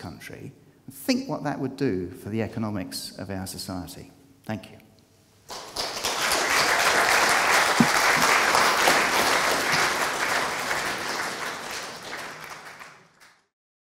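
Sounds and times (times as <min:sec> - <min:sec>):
audience applauding: 0:05.5 - 0:13.5.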